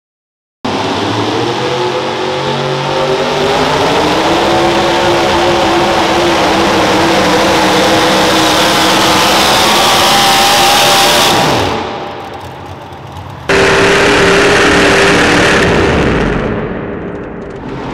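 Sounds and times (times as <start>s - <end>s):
truck engine at full throttle: 0.6s - 17.9s.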